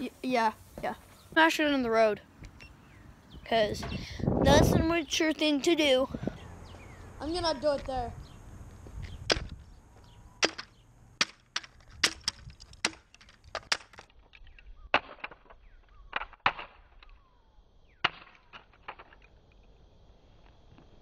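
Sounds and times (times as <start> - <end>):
hammer hitting road: 9.2 - 9.6, 10.4 - 14.0
wood cracking: 9.3 - 9.6, 10.4 - 17.1.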